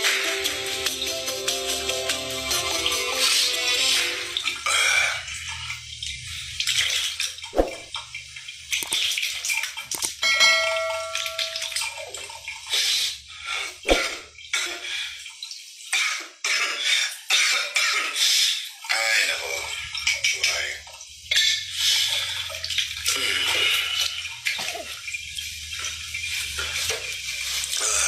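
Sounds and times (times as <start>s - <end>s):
water splashing at a sink: 3.6s - 28.0s.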